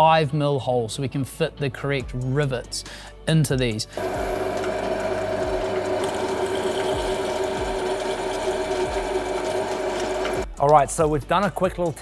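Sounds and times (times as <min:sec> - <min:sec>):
drill press motor hum: 0:04.0 - 0:10.5.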